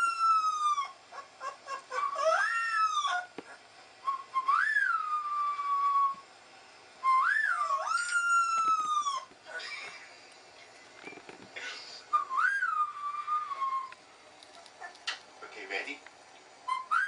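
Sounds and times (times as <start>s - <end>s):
puppy howling from speakers: 0.0s - 6.2s, 7.0s - 9.6s, 12.2s - 14.0s, 16.7s - 17.0s.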